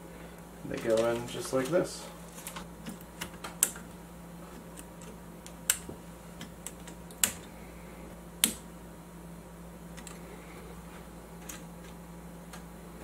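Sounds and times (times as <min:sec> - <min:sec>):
lamps snapping into clips: 0:02.4 - 0:03.9, 0:04.6 - 0:07.5, 0:08.4 - 0:08.7.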